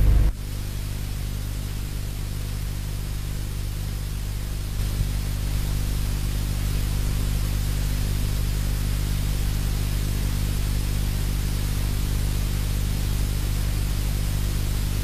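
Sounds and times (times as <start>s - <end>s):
steady hiss: 0.0s - 9.9s
low electrical hum: 0.0s - 15.0s.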